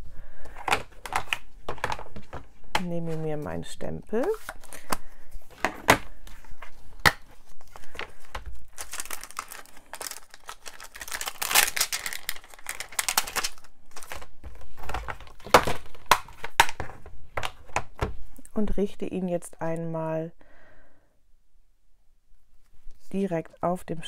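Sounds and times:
crinkly plastic rustling: 0.0s - 18.4s.

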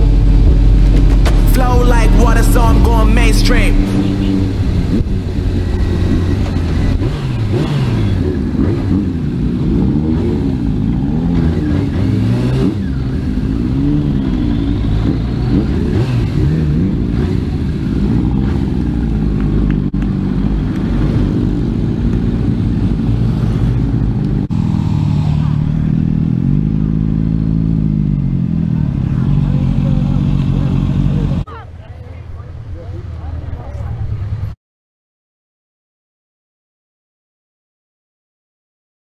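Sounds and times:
motorcycle engine revving: 3.9s - 31.5s.

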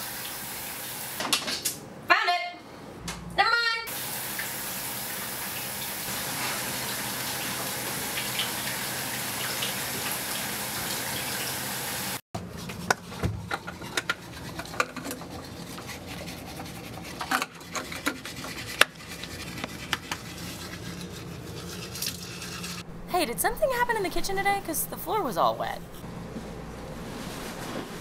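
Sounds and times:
water running from tap: 0.0s - 1.2s, 3.9s - 12.2s
teeth brushing scrubbing: 17.9s - 22.8s.

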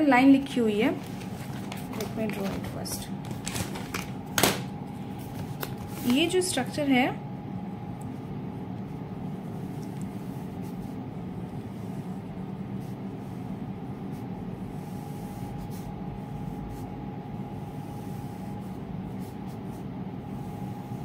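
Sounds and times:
steady background hum: 0.0s - 21.0s
pen scratching on paper: 9.3s - 21.0s.

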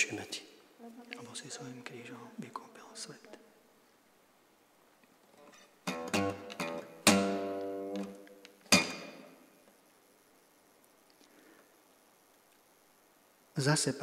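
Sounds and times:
acoustic guitar strumming chords: 5.4s - 9.4s.

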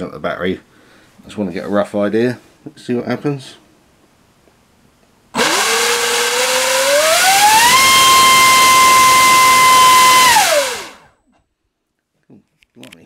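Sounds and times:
electric motor whine: 5.4s - 11.1s.

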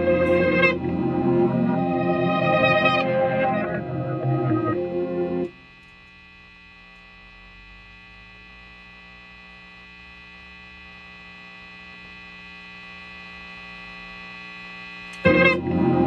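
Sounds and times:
electrical hum: 0.0s - 16.0s.

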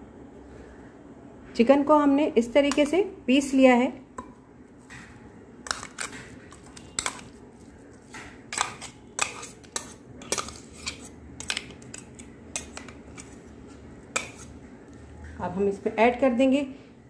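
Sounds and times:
spoon scraping metal jar: 5.6s - 7.4s, 8.0s - 13.5s, 14.1s - 14.6s.

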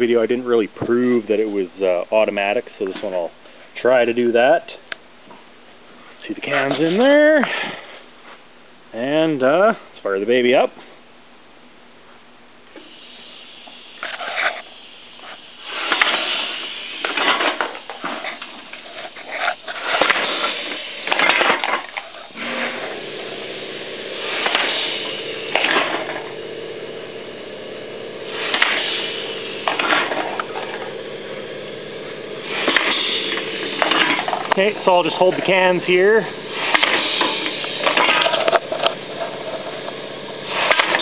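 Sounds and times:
steady hum: 0.0s - 41.0s
pneumatic can crusher air blasts: 12.7s - 41.0s.

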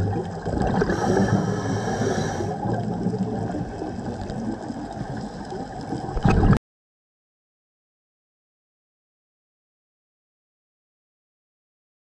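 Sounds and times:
muffled underwater rumble: 0.0s - 6.6s.

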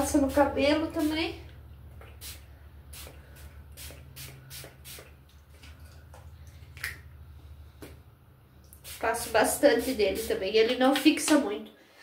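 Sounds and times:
spray bottle hissing puffs: 2.0s - 5.2s, 8.7s - 10.4s.

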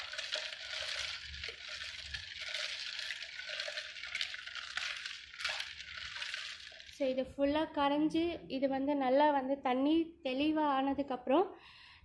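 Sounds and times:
ice clinking against pitcher: 0.0s - 7.0s
wooden spoon stirring ice water: 0.0s - 7.4s.

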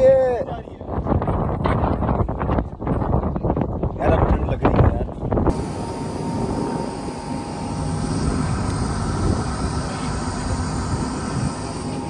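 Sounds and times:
boat engine droning: 5.5s - 12.0s.

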